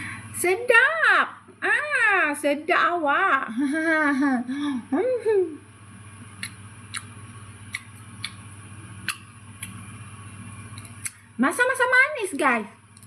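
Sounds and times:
low steady hum: 0:00.0 - 0:13.0
fruit flesh tearing clicks: 0:07.7 - 0:08.4.

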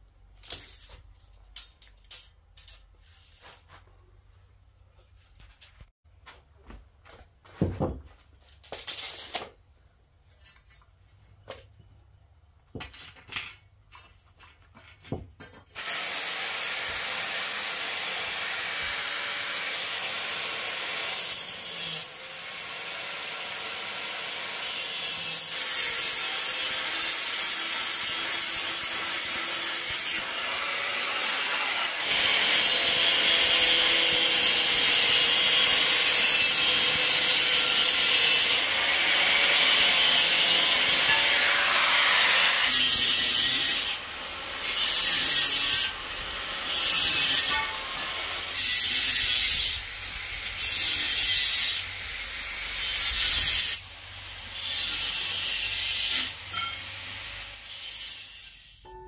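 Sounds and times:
grinder disc cutting metal: 0:15.8 - 0:58.8.

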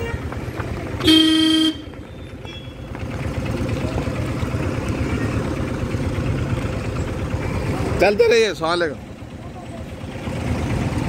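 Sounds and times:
car horn: 0:00.0 - 0:02.9
car engine rumbling: 0:00.0 - 0:11.0.

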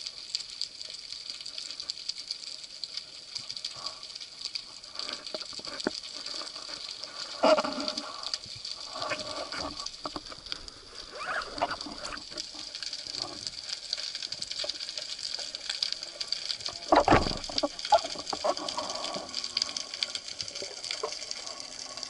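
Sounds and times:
underwater hiss with clicks: 0:00.0 - 0:22.0
muffled water bursts: 0:04.7 - 0:14.4.

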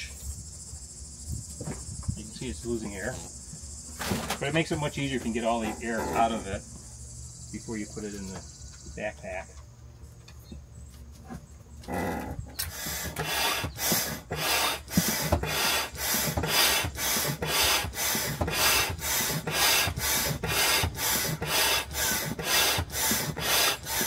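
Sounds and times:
hand pump rasping air: 0:12.6 - 0:24.0.

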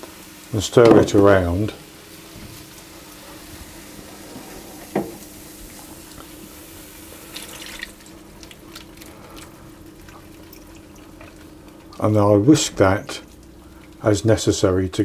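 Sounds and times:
pan hissing: 0:00.0 - 0:10.0
milk splashing and bubbling in pan: 0:02.2 - 0:14.6.

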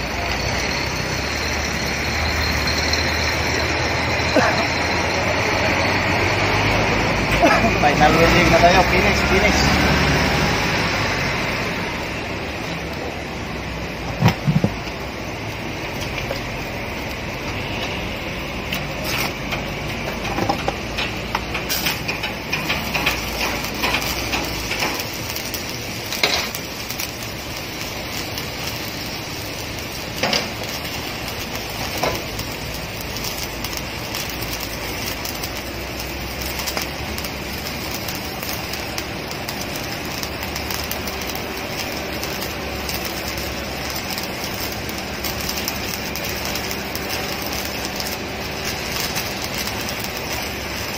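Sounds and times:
welding arc crackling: 0:00.0 - 0:50.9
welding pops: 0:14.0 - 0:18.0, 0:18.6 - 0:50.9.

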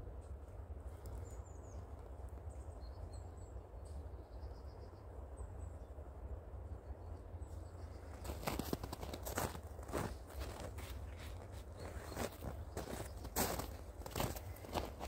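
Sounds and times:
steady low rumble: 0:00.0 - 0:15.0
small birds chirping: 0:07.0 - 0:15.0.

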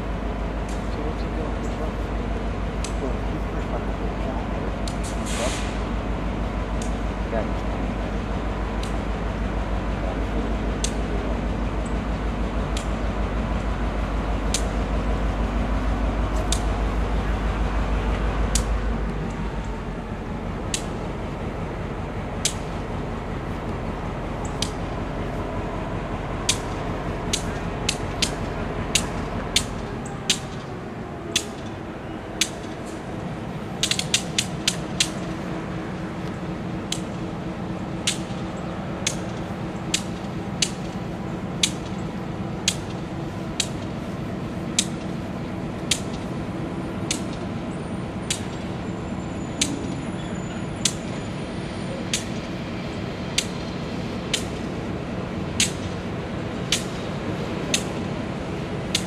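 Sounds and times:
diesel locomotive idling: 0:00.0 - 0:59.0
sharp clicks: 0:04.8 - 0:05.8, 0:06.7 - 0:07.0, 0:08.8 - 0:09.1, 0:12.6 - 0:14.9, 0:16.3 - 0:17.0, 0:18.1 - 0:19.8, 0:20.6 - 0:21.1, 0:22.4 - 0:23.0, 0:23.6 - 0:25.4, 0:26.4 - 0:48.8, 0:49.5 - 0:51.4, 0:52.0 - 0:59.0.

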